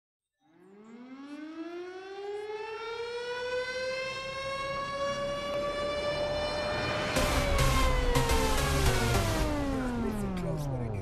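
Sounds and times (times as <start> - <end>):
siren winding up: 1.0 - 10.7.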